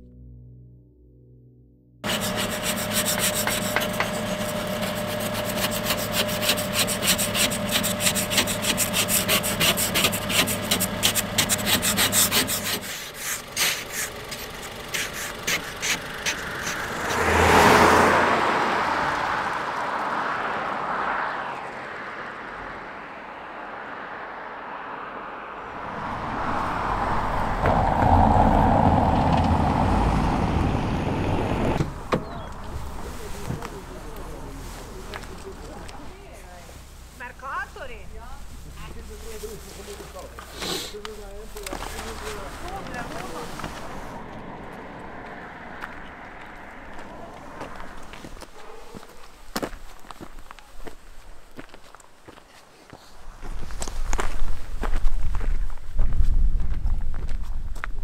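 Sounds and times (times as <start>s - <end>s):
ice scraper scraping windshield: 2.0s - 17.3s, 40.4s - 41.0s
loud rushing sound: 20.7s - 35.1s, 42.0s - 48.4s.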